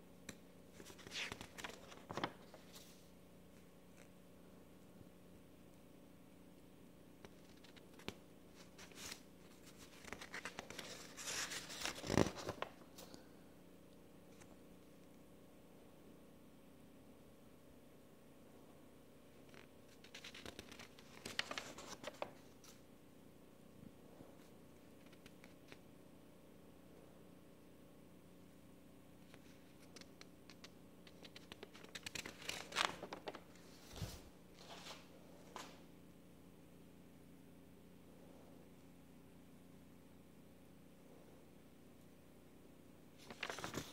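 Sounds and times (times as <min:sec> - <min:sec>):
paper rustling and flapping: 0:00.8 - 0:03.0, 0:07.3 - 0:13.2, 0:19.5 - 0:22.8, 0:29.8 - 0:35.7, 0:43.2 - 0:43.9
page turning swish: 0:43.2 - 0:43.9.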